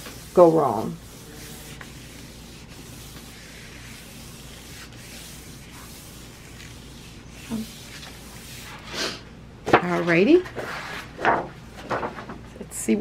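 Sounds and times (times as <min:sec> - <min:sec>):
hands rubbing paper: 0:00.0 - 0:08.9.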